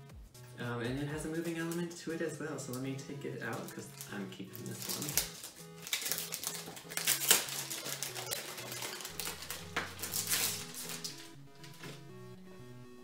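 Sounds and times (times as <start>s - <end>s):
soft background music: 0.0s - 13.0s
packaging rustling and clicking: 3.4s - 12.0s.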